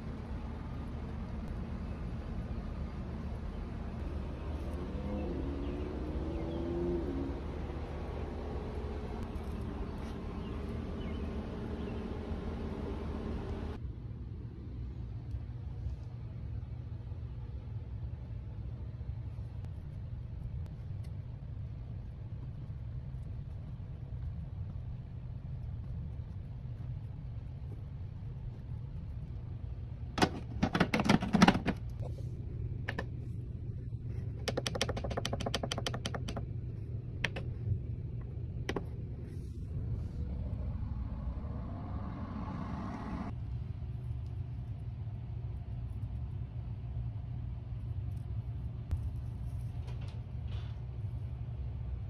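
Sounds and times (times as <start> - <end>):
steady low hum: 0.0 - 52.0
plastic trays clattering: 30.2 - 31.9.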